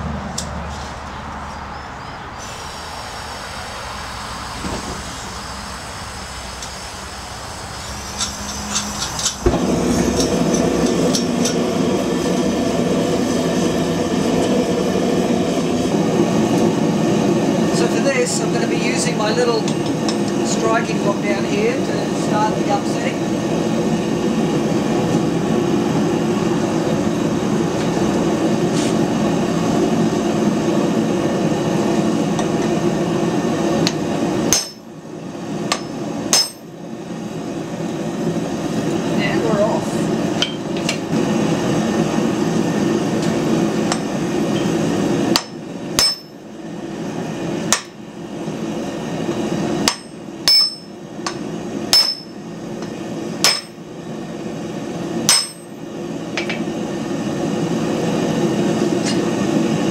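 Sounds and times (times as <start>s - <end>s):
loud rushing noise: 0.0s - 34.6s
hammer striking hot steel: 6.5s - 12.3s, 19.6s - 20.4s, 33.8s - 35.0s, 35.7s - 36.7s, 40.4s - 41.0s, 43.2s - 46.5s, 47.7s - 48.0s, 49.8s - 53.9s, 55.2s - 55.8s, 56.4s - 56.7s.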